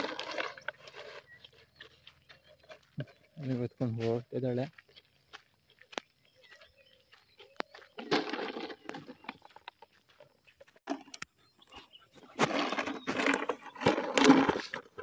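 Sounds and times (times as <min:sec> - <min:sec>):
puppy chewing plastic bottle: 0:00.0 - 0:01.3.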